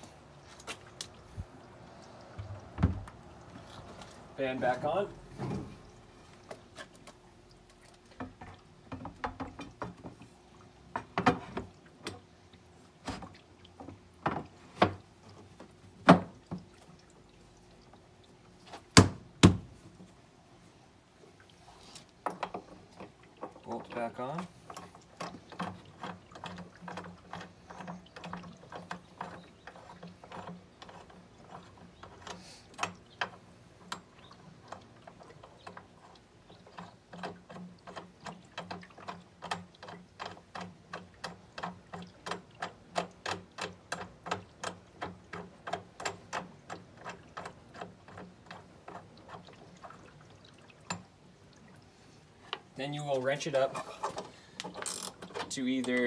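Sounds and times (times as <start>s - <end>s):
ratchet clicking: 54.6s - 55.2s.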